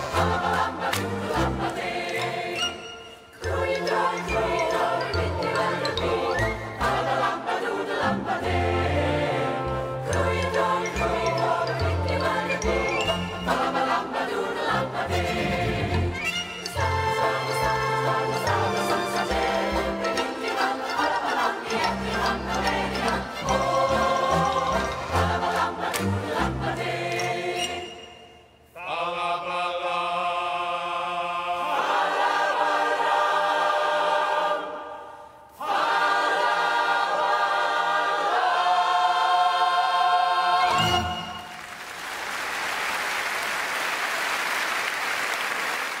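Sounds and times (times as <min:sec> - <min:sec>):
choir singing: 0:00.0 - 0:41.6
audience applauding: 0:41.3 - 0:46.0.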